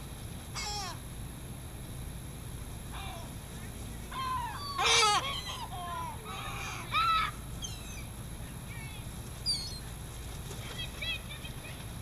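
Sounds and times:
gulls squealing calls: 0.5s - 1.0s, 4.0s - 8.7s, 9.4s - 10.0s.

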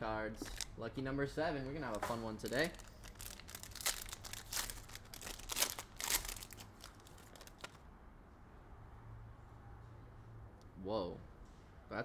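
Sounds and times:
foil pack tearing and crinkling: 1.8s - 7.8s.

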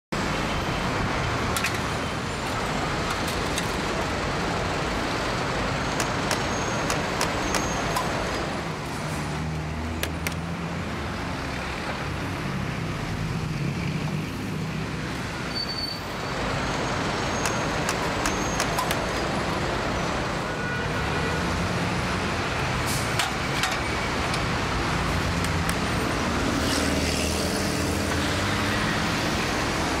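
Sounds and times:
buses and cars passing: 0.2s - 30.0s
low hum of heavy engines: 0.2s - 30.0s
sharp clicks or knocks: 5.9s - 8.1s, 10.0s - 10.5s, 17.4s - 19.2s.

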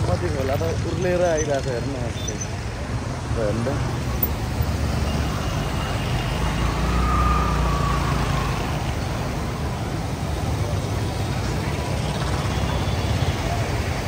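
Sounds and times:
road traffic: 0.0s - 14.0s
river rushing: 2.4s - 14.0s
vehicle passing: 3.5s - 14.0s.

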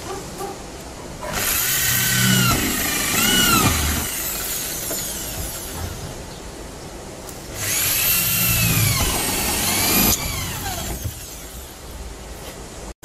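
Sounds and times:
electric drill driving a screw: 1.3s - 5.8s, 7.6s - 11.4s.

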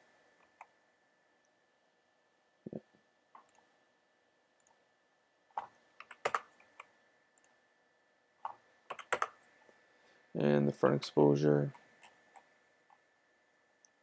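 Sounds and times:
mouse and keyboard clicks: 5.6s - 7.5s.

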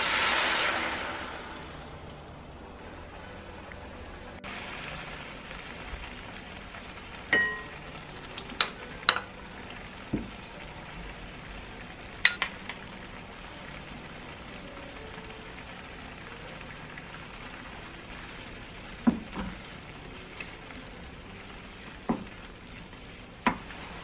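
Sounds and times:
broth bubbling and sizzling in a pan: 0.0s - 24.0s
utensils tapping on a pan: 7.3s - 9.4s, 12.2s - 12.8s, 19.0s - 19.6s, 22.0s - 22.4s, 23.4s - 23.7s
wooden spatula knocking a pan: 19.0s - 19.6s, 22.1s - 22.4s.

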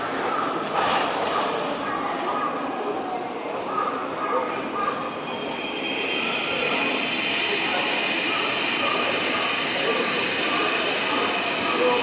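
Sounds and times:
subway train rumbling: 0.0s - 12.0s.

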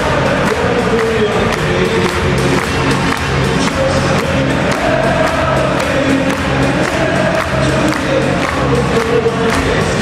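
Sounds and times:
football crowd chanting: 0.0s - 1.5s, 3.5s - 10.0s.

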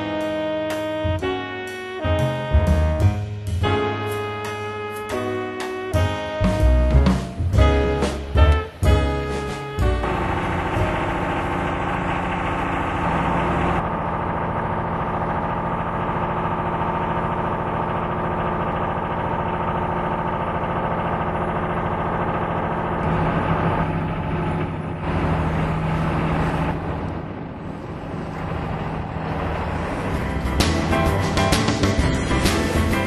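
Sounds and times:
engine running steadily: 0.0s - 33.0s.

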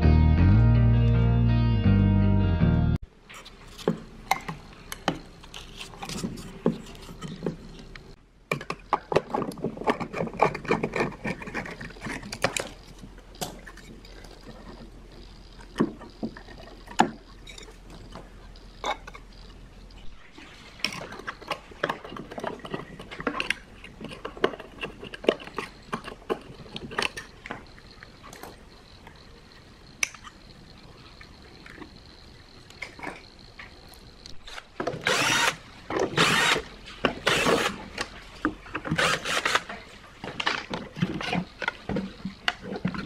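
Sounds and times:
tool clicks and scrapes: 3.3s - 15.0s, 20.0s - 27.7s, 34.3s - 41.8s.

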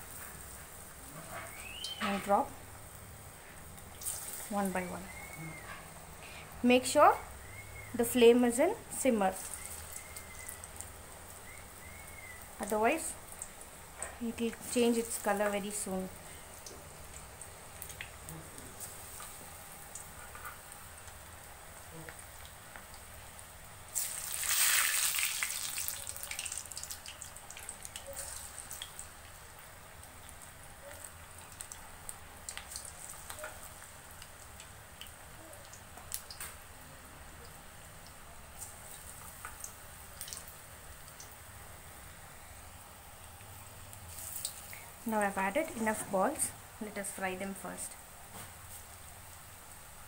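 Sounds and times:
deep-frying sizzle: 0.0s - 50.0s
burst of sizzling: 3.9s - 13.7s, 23.1s - 29.1s
oil pops and crackles: 31.0s - 36.6s.

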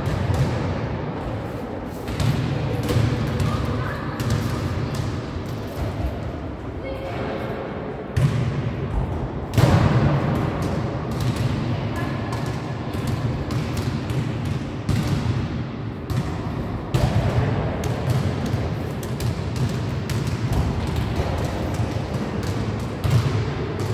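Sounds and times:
basketballs dribbled on wooden floor: 16.1s - 23.9s.

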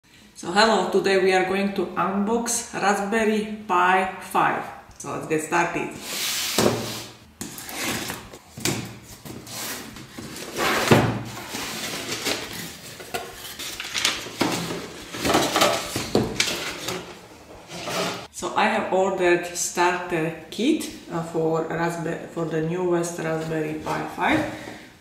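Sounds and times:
paper packing rustling: 6.4s - 17.2s
cardboard box being opened: 9.2s - 15.2s.

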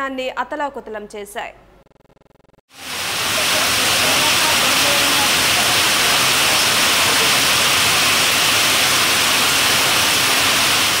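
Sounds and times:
heavy rain falling on ground: 2.7s - 11.0s.

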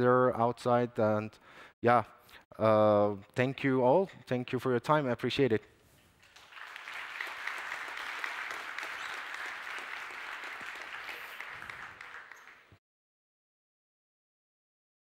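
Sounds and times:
audience applauding: 6.2s - 12.8s.

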